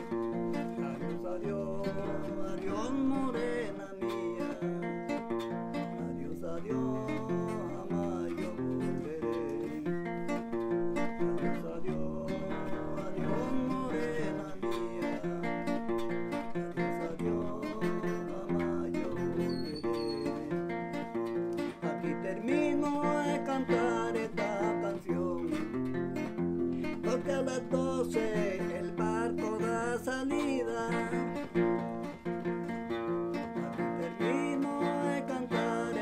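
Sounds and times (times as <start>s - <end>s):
acoustic guitar playing: 0.0s - 36.0s.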